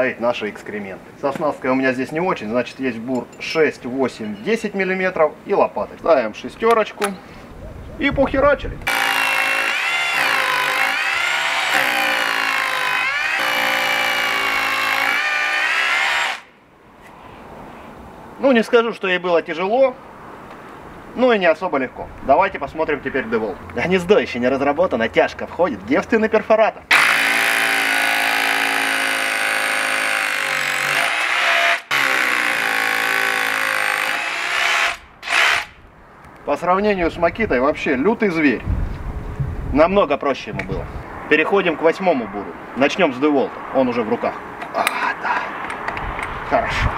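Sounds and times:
rotary hammer drilling into concrete: 0:08.8 - 0:16.5, 0:26.9 - 0:35.8.

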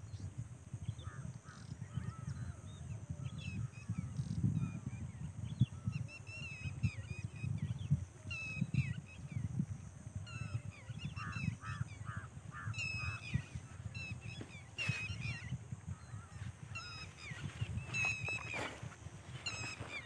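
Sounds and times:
birds chirping: 0:00.0 - 0:20.0
wind rumble on microphone: 0:00.0 - 0:20.0.

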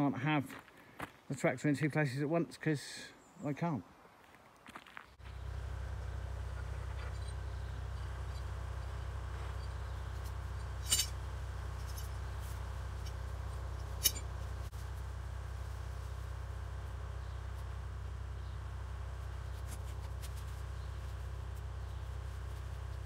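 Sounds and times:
car engine idling: 0:05.2 - 0:23.0.

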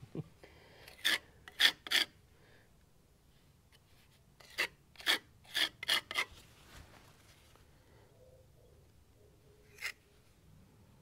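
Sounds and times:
filler scraping on concrete: 0:00.8 - 0:02.2, 0:04.0 - 0:07.4, 0:09.6 - 0:10.1.

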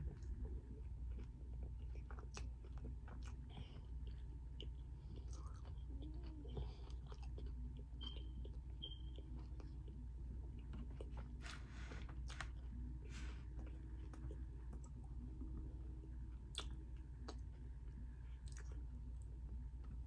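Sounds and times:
person chewing food: 0:00.0 - 0:20.0.

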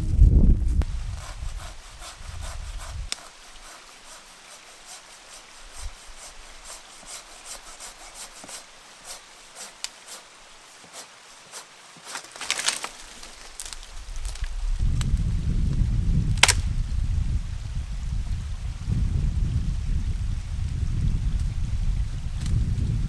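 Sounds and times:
hand saw cutting wood: 0:01.1 - 0:13.0.

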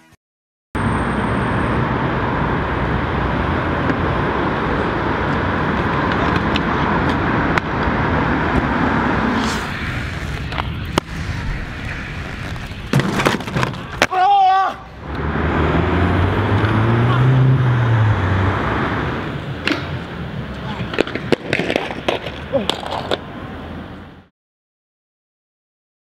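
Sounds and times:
city traffic noise: 0:00.8 - 0:24.3
inline skate wheels rolling: 0:05.2 - 0:14.4, 0:19.6 - 0:23.3.

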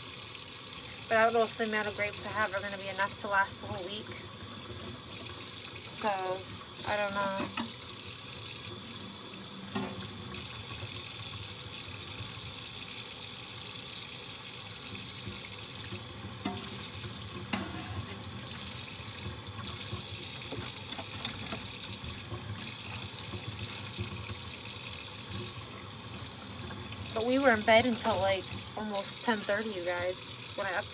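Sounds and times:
tap running into a sink: 0:04.0 - 0:12.5, 0:14.4 - 0:27.2
dishes clinking: 0:17.5 - 0:18.1.

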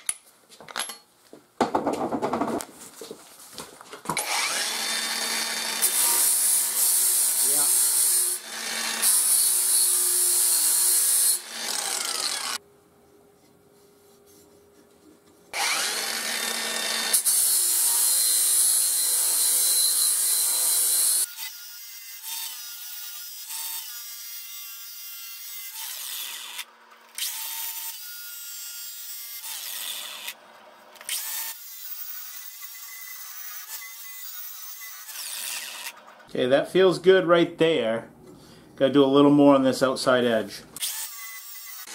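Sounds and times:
angle grinder grinding steel: 0:04.2 - 0:12.6, 0:15.5 - 0:28.2.

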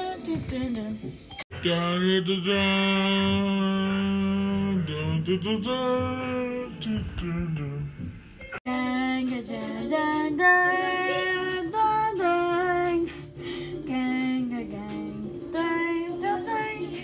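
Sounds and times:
child singing a jingle: 0:08.7 - 0:13.0.

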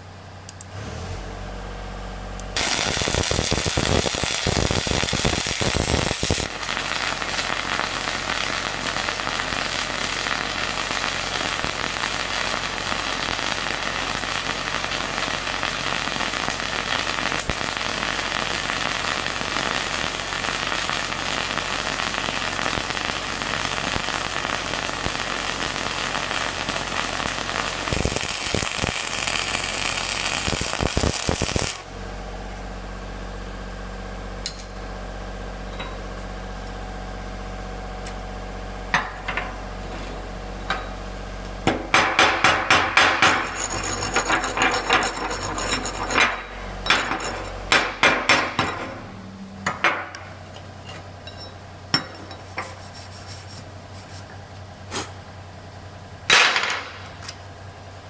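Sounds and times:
welder engine hum: 0:00.0 - 0:51.5
welding arc crackling: 0:02.5 - 0:31.9, 0:42.3 - 0:48.6.

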